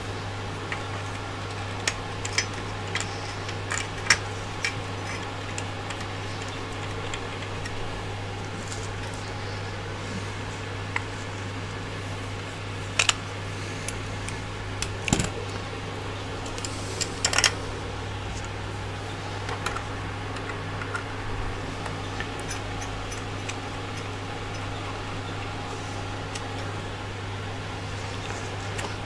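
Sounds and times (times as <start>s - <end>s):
steady low hum: 0.0s - 29.0s
tools clicking and knocking: 0.7s - 7.9s, 22.0s - 24.7s.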